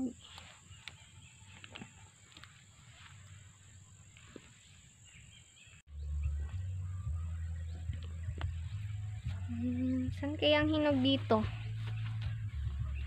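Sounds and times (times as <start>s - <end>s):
steady low rumble: 5.9s - 13.0s.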